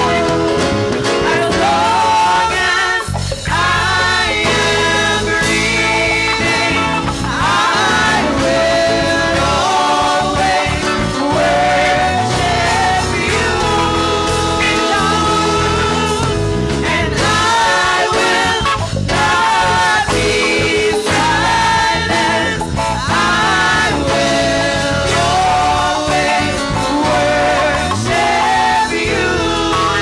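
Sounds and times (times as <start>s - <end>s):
church band playing: 0.0s - 30.0s
women singing together: 0.0s - 30.0s.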